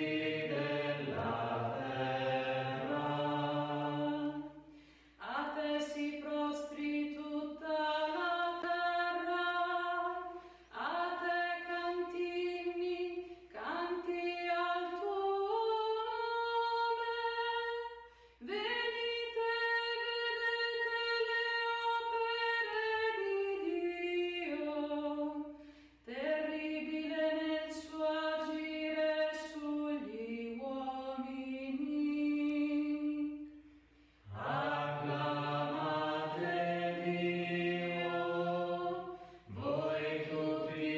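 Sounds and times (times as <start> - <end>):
woman singing unaccompanied: 5.2 - 25.5, 26.1 - 33.4
lower voice singing: 34.3 - 40.9.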